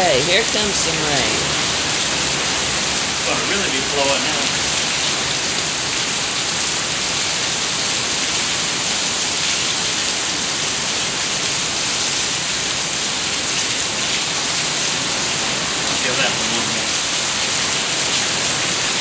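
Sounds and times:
heavy rain: 0.0 - 19.0.

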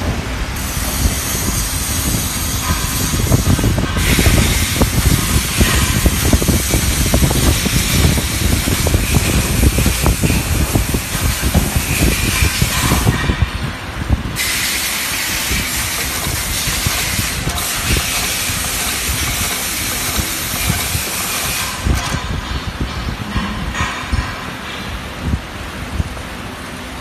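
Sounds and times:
machine hiss: 0.6 - 13.4, 14.4 - 22.6.

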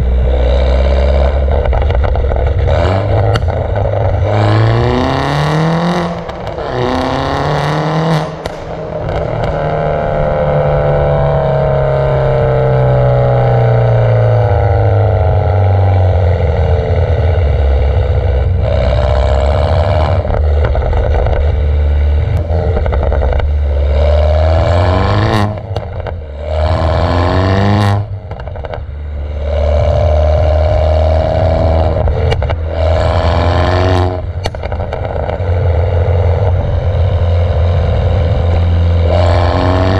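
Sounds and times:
loud exhaust bursts: 0.0 - 20.7
car engine revving through exhaust: 0.0 - 39.9.

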